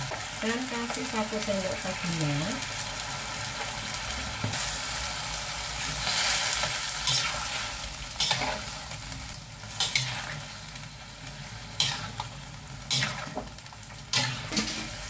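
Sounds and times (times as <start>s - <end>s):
food sizzling: 0.0s - 15.0s
metal spatula scraping a wok: 5.8s - 8.8s, 9.8s - 10.6s, 11.7s - 12.3s, 14.1s - 15.0s.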